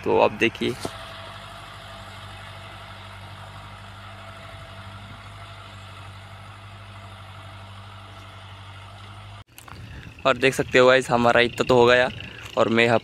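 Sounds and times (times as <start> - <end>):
tractor diesel engine humming: 0.0 - 13.0.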